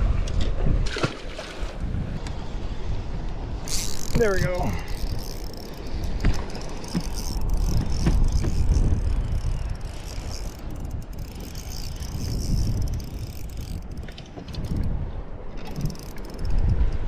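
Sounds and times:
wind rumble on microphone: 0.0 - 17.0
fishing reel cranking: 3.6 - 14.9, 15.6 - 16.7.

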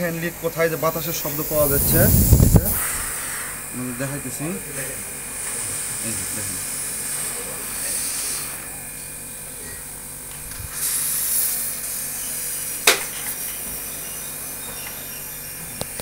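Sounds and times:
compressed air hissing: 0.0 - 3.7, 5.2 - 8.7, 10.5 - 13.6.

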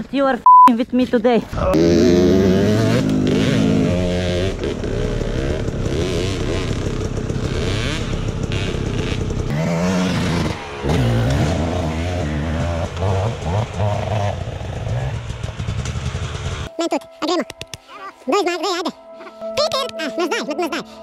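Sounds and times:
dirt bike engine revving: 1.7 - 16.7
clatter: 4.4 - 16.7.

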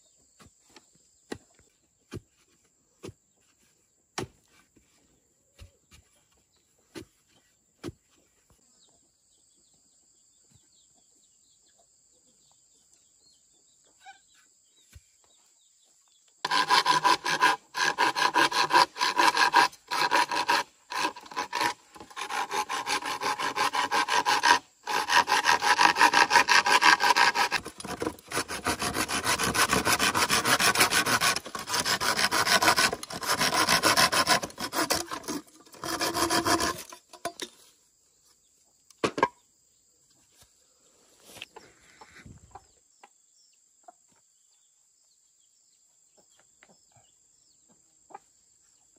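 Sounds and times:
tool rasping wood: 16.4 - 37.1.

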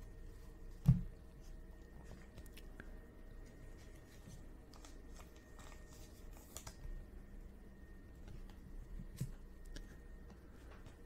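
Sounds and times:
steady low hum: 0.0 - 11.0
trading cards clicking and rustling: 4.6 - 6.9.

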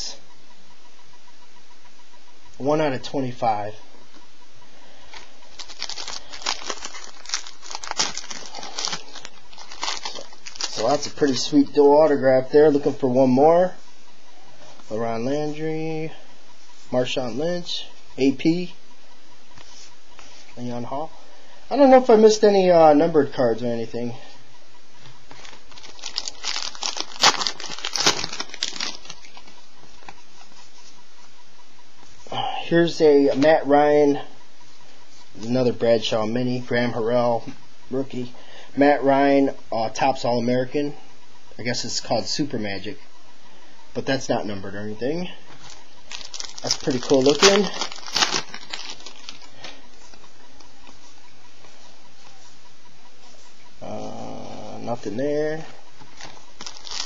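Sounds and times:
cards rustling: 5.1 - 11.6, 25.3 - 29.5, 45.6 - 50.2, 56.1 - 57.0
card wrapper crinkling: 5.5 - 11.6, 25.3 - 29.6, 45.6 - 49.8, 56.1 - 57.0.

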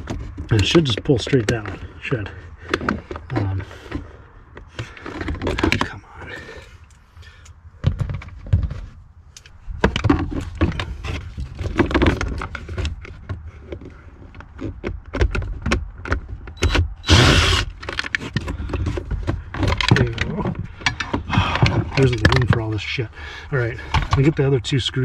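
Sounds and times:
cordless driver: 16.6 - 18.1.

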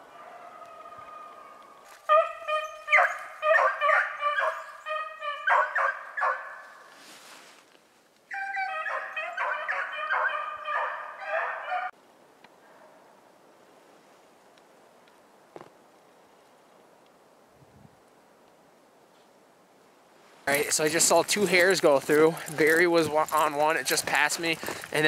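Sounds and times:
hounds baying: 0.0 - 6.8, 8.3 - 11.9.

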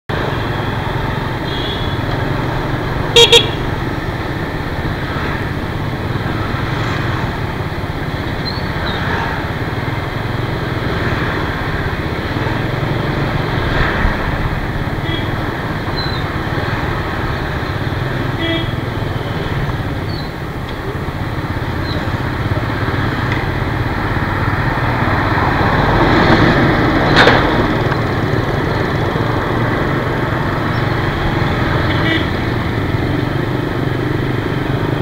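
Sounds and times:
street traffic: 0.1 - 35.0
motor scooter engine: 0.2 - 13.6
vehicle horn beeps: 1.4 - 2.1, 3.1 - 3.7, 15.0 - 15.4, 18.4 - 18.8, 31.9 - 32.4.

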